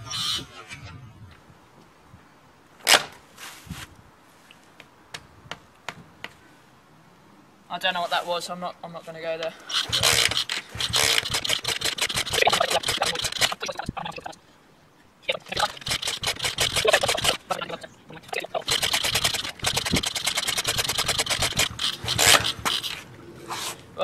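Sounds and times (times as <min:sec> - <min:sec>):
engine being kicked over: 0:09.7 - 0:14.3, 0:15.5 - 0:23.0.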